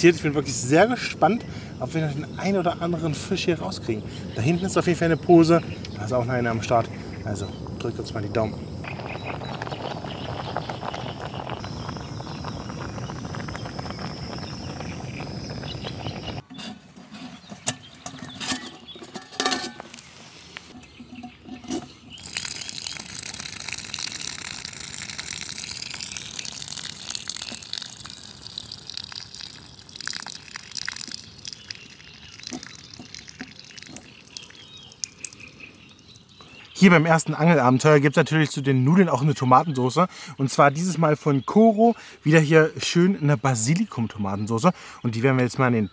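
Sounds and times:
water boiling in a pot: 0:01.8 - 0:16.4, 0:20.8 - 0:36.4
water pouring and splashing: 0:06.1 - 0:16.4, 0:20.7 - 0:36.6
pot and lid clanking: 0:16.4 - 0:20.0.

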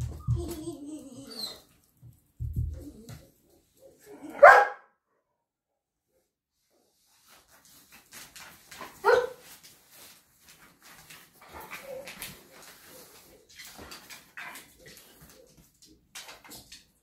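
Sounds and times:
dog whining: 0:00.0 - 0:01.7
dog barking: 0:04.2 - 0:05.0, 0:09.0 - 0:09.4.

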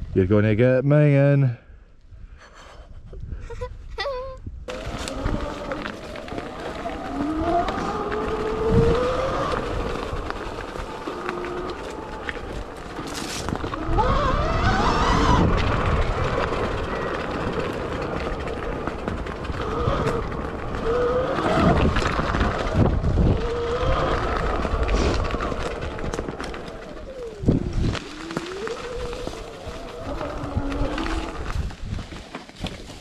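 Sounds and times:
electric motor whine: 0:04.7 - 0:31.8.

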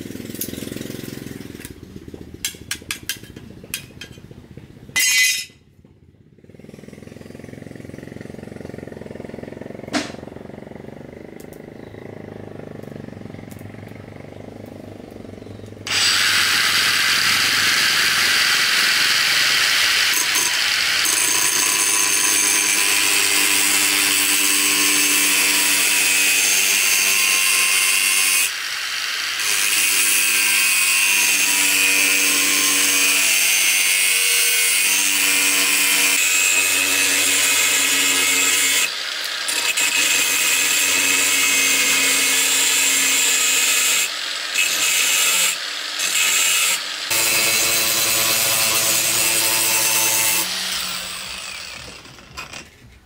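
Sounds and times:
angle grinder grinding steel: 0:05.0 - 0:05.5, 0:15.8 - 0:52.8.

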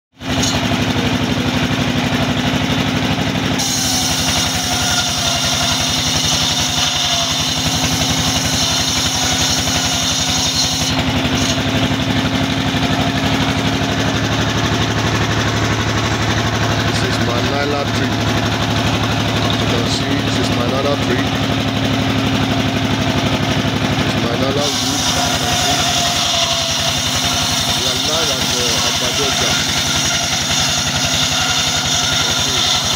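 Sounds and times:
engine-driven saw bench running: 0:00.2 - 0:32.9
saw cutting plank hiss: 0:03.6 - 0:11.9, 0:24.2 - 0:32.9.

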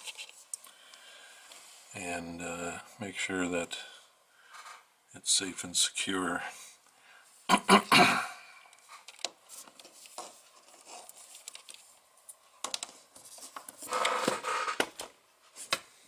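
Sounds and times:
light clicks and rustling: 0:08.7 - 0:13.8.

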